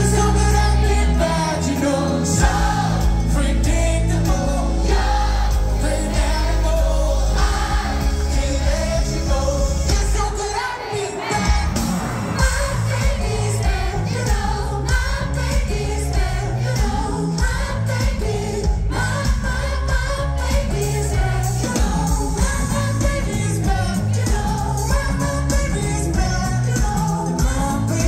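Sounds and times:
bass guitar: 0:00.0 - 0:10.4, 0:11.3 - 0:28.0
live pop band playing: 0:00.0 - 0:28.0
person singing: 0:20.7 - 0:28.0.

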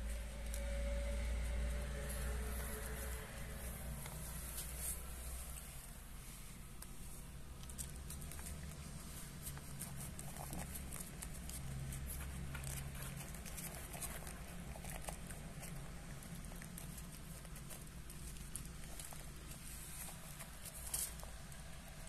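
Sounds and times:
low hum: 0:00.0 - 0:06.2
cats crunching kibble: 0:00.0 - 0:22.0.

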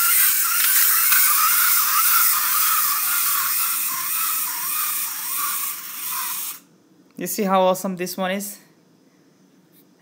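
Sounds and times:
toy car motors whirring: 0:00.0 - 0:06.7.

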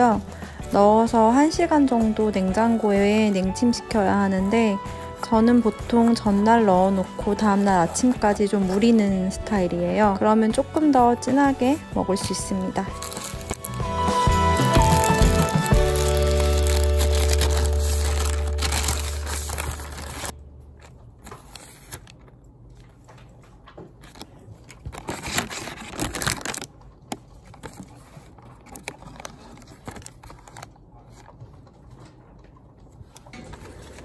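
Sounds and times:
background music: 0:00.0 - 0:20.4
wrapper crinkling: 0:12.1 - 0:22.4, 0:24.0 - 0:31.3.

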